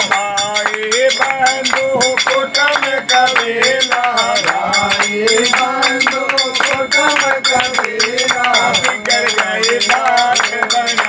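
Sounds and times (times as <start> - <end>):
clinking metal percussion: 0.0 - 11.0
hand claps: 0.0 - 11.0
men singing devotional song: 0.0 - 11.0.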